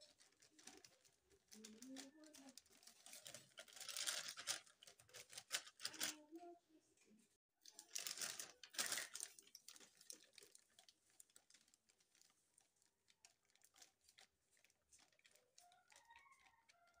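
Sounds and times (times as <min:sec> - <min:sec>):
paper bag rustling: 0:00.0 - 0:06.2, 0:07.8 - 0:12.7
powder pouring ticks: 0:07.7 - 0:17.0.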